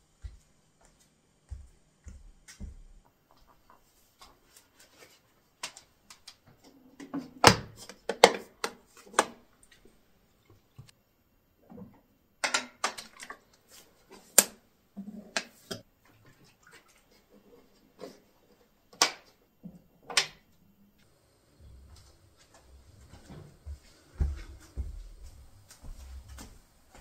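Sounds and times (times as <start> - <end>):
soft footsteps: 0.0 - 5.2, 21.0 - 27.0.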